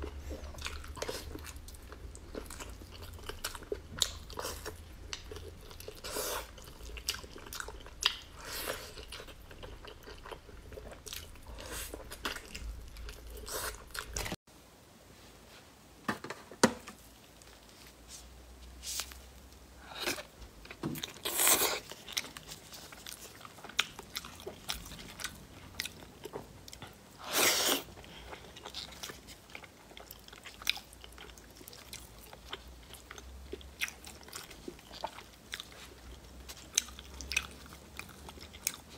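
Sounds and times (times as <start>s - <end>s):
person chewing meat: 0.0s - 14.4s, 19.8s - 38.9s.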